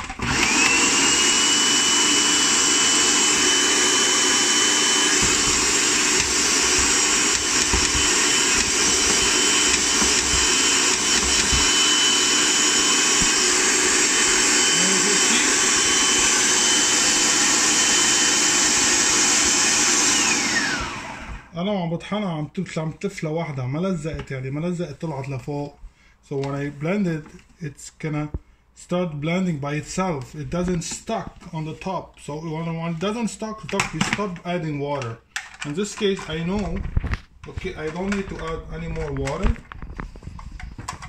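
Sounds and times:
food processor grinding: 0:00.0 - 0:21.5.

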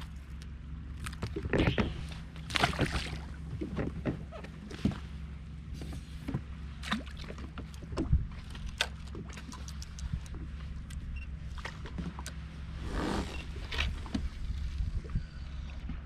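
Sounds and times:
steady low hum: 0:00.0 - 0:16.0
water splashing against hull: 0:00.0 - 0:16.0.

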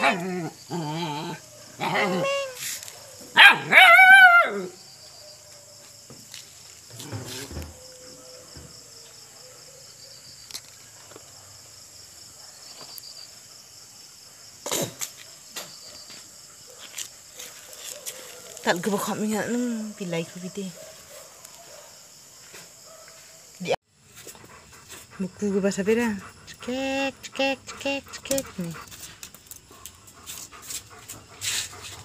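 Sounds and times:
faint scuffs and clicks: 0:16.8 - 0:18.6.

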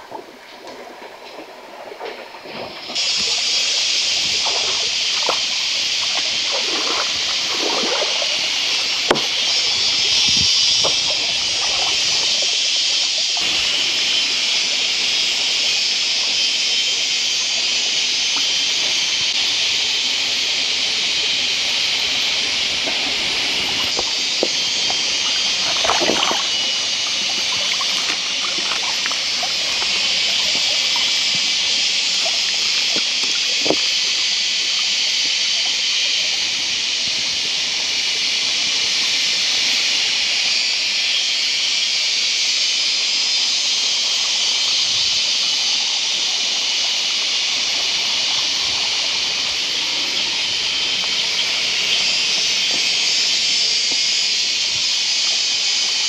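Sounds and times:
stream running: 0:00.0 - 0:56.0
hands splashing in water: 0:04.2 - 0:12.3, 0:22.8 - 0:34.2.

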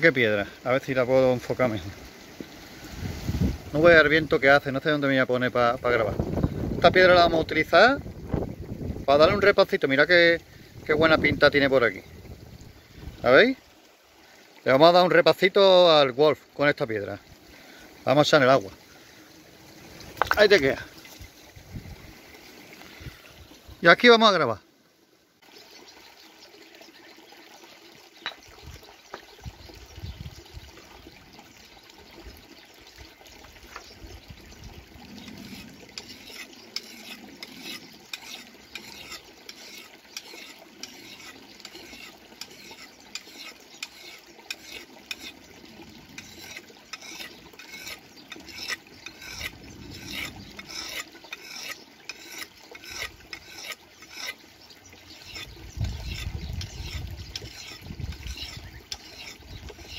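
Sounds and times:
trickling stream: 0:00.0 - 0:59.9
knife scraping on stone: 0:35.2 - 0:45.4, 0:46.2 - 0:54.4, 0:55.1 - 0:59.9.

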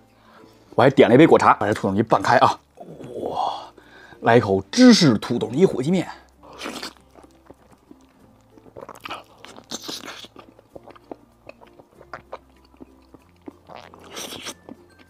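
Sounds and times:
wet chewing clicks: 0:06.3 - 0:15.0
noodles being slurped: 0:06.4 - 0:15.0.

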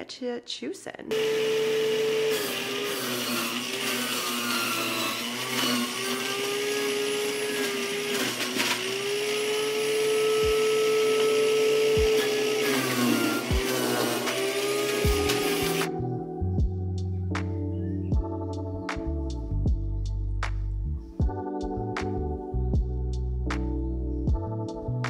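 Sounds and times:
juicer motor whining: 0:01.1 - 0:15.9.

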